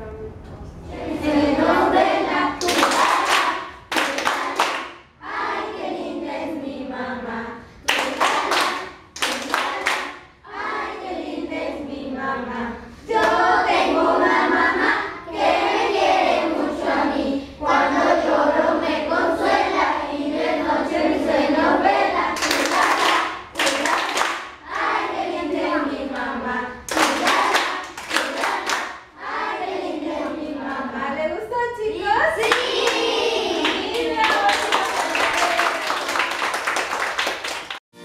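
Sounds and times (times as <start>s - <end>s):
children singing in unison: 0.9s - 31.2s
hand-clapping: 2.6s - 5.0s, 7.9s - 10.2s, 22.4s - 24.6s, 26.9s - 29.0s, 33.6s - 37.8s.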